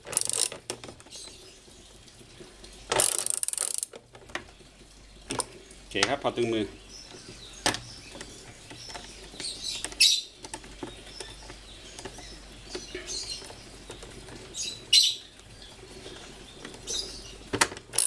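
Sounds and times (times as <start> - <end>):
ratchet wrench clicking: 0.0 - 0.6, 3.0 - 4.0.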